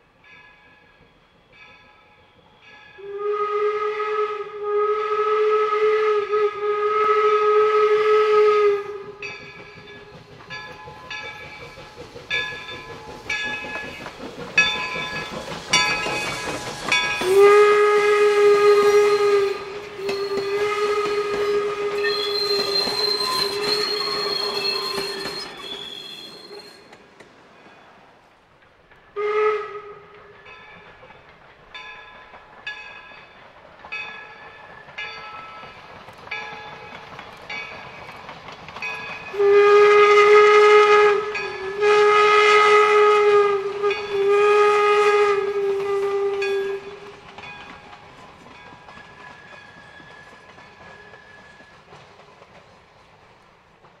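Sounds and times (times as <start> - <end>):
rumble of passing train: 0.0 - 54.0
steam locomotive whistle: 1.2 - 10.2, 10.9 - 27.0, 29.1 - 30.5, 39.2 - 47.7, 48.5 - 52.0.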